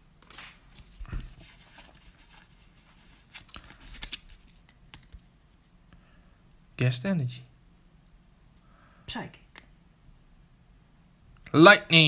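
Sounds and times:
trading cards rustling and clicking: 0.2s - 5.3s.

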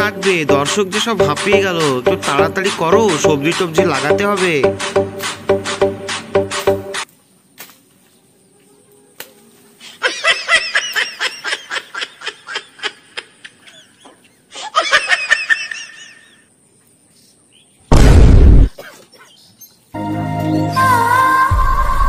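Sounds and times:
person laughing: 10.0s - 16.4s.

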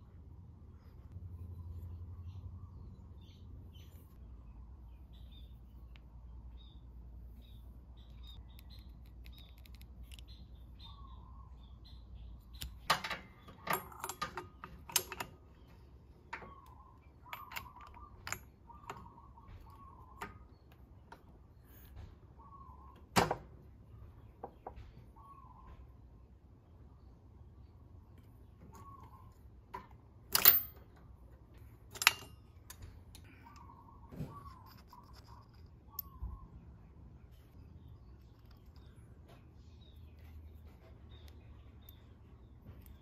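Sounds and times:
faint bird chirps: 0.8s - 13.7s, 15.5s - 20.8s, 21.5s - 23.1s, 23.9s - 26.1s, 27.0s - 29.6s, 33.2s - 43.0s
metallic tool clinks and clicks: 30.3s - 30.8s.

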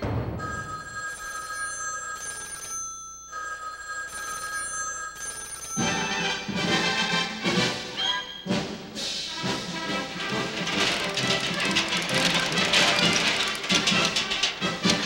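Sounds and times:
electric bell ringing: 0.4s - 6.2s
orchestral music: 6.5s - 15.0s.

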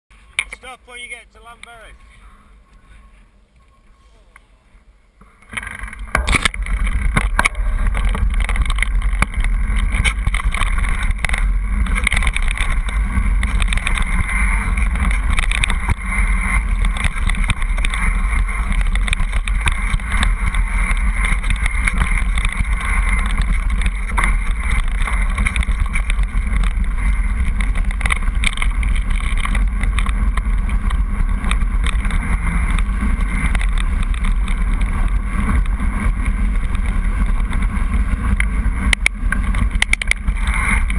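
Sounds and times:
wind rumble on microphone: 1.7s - 40.9s
bike rattling: 5.2s - 40.9s
knocks from the trail: 5.2s - 40.9s
tyres crunching on stones: 5.2s - 40.9s.

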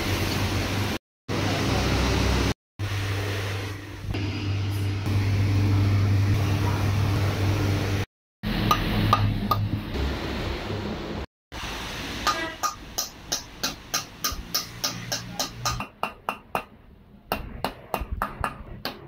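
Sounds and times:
low mechanical hum: 0.0s - 11.2s
sharp metallic taps: 12.3s - 19.0s.

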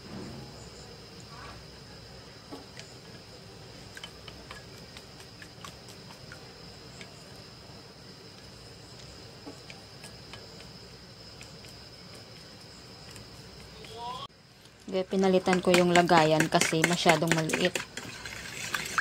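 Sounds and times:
chopsticks beating egg: 3.7s - 7.5s, 8.4s - 14.3s, 14.9s - 19.0s
chopsticks clicking on bowl: 15.5s - 17.9s.

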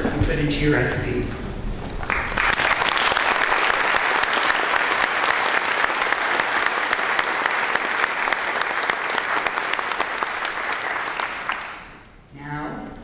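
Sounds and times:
audience applauding: 2.0s - 12.1s.

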